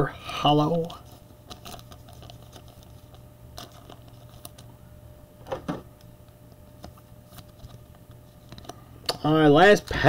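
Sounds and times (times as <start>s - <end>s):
cards and wrapper rustling: 1.0s - 4.7s.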